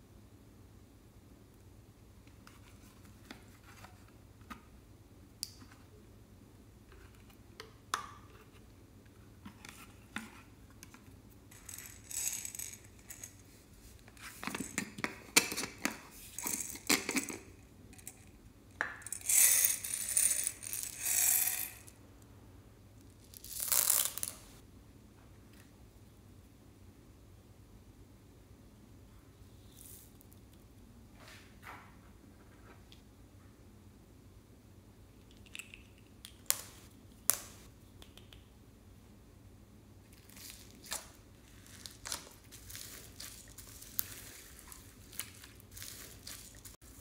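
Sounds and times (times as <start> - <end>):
plastic beads rattling: 11.5 - 13.4, 16.3 - 17.4, 19.0 - 21.9, 23.2 - 24.5, 40.2 - 46.8.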